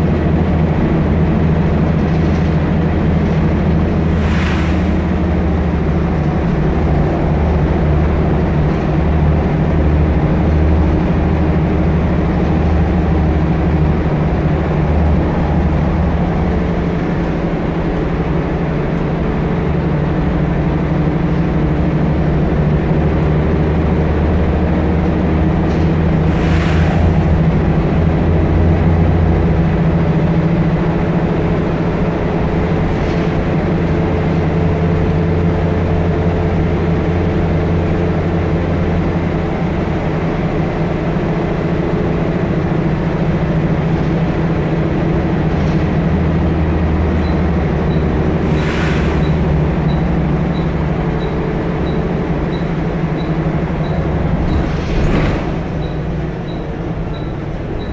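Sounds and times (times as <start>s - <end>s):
bus diesel engine drone: 0.0s - 57.9s
brief hiss: 4.1s - 5.4s, 26.2s - 27.4s, 48.4s - 49.9s.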